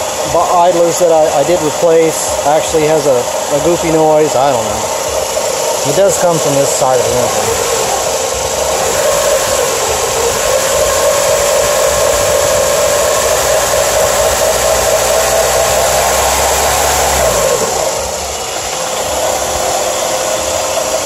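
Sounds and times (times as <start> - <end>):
car engine idling: 0.0 - 21.0
radiator fan hissing: 0.0 - 21.0.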